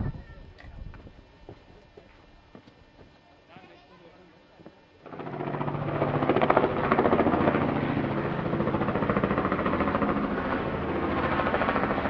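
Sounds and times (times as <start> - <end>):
helicopter engine hum: 5.0 - 12.0
helicopter rotor beating: 5.0 - 12.0.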